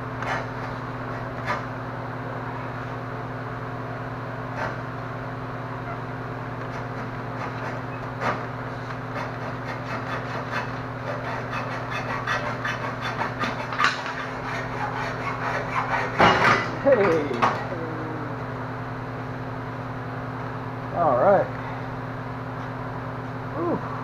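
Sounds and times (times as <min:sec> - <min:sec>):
steady low hum: 0:00.0 - 0:24.0
hacksaw cutting metal tubing: 0:00.2 - 0:00.5, 0:06.6 - 0:17.6.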